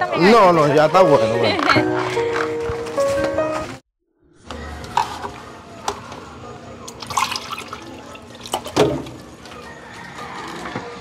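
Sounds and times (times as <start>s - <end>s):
drink pouring into a glass: 6.9s - 8.8s
liquid splashing: 6.9s - 9.1s.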